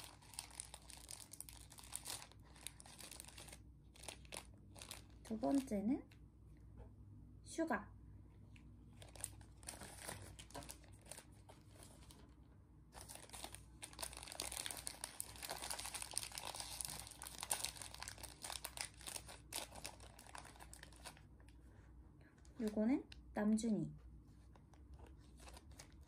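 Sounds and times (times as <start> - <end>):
plastic pouch crinkling and tearing: 0.0 - 6.2, 8.9 - 12.2, 13.0 - 21.5, 24.7 - 26.0.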